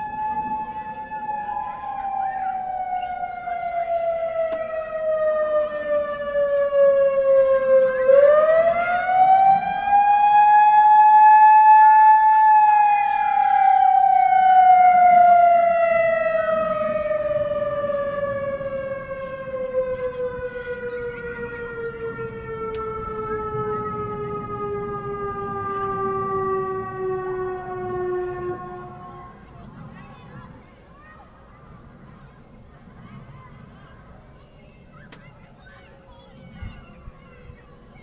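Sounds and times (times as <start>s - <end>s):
rotating siren wailing: 0.0s - 29.8s.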